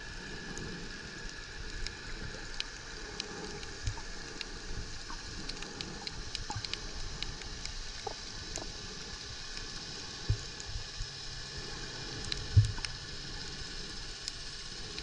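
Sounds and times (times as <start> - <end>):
sharp underwater clicks and crackles: 0.0 - 15.0
low underwater rumble: 0.2 - 14.1.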